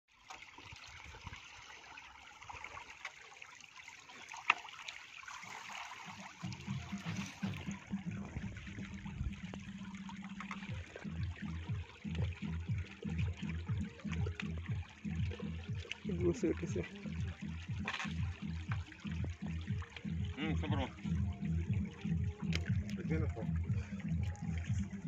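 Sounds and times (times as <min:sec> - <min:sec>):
water trickling and dripping: 0:00.1 - 0:25.0
low rumble: 0:06.5 - 0:15.7.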